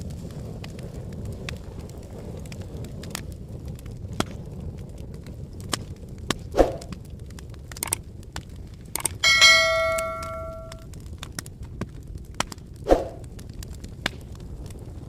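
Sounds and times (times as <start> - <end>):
sharp pops from fire: 0.0 - 9.2, 10.9 - 15.0
wood fire crackling: 0.0 - 9.2, 10.8 - 15.0
ringing bell chime: 9.2 - 10.8.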